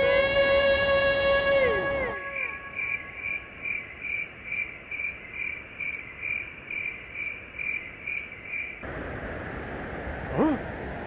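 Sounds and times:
cricket chirping: 2.1s - 8.8s.

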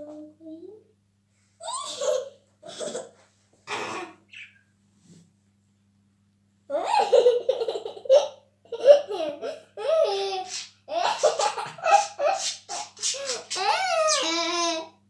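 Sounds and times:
young child giggling: 6.7s - 14.2s.

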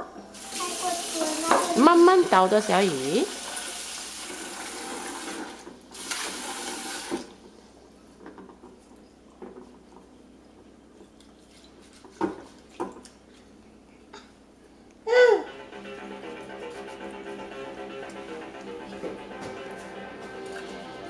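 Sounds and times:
hands washing rice in water: 11.2s - 13.6s.

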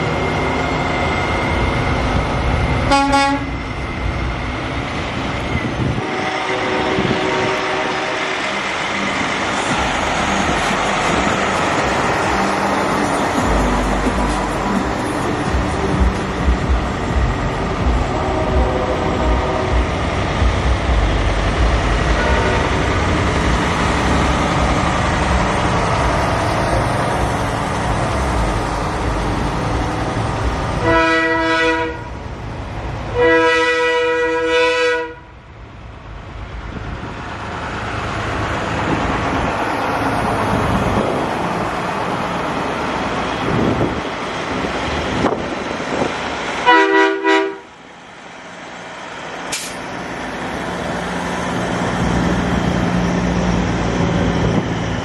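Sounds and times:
multi-tone air horn blasts: 2.9s - 3.5s, 6.0s - 8.4s, 22.2s - 22.8s, 30.8s - 32.1s, 33.2s - 35.3s, 46.6s - 47.7s.

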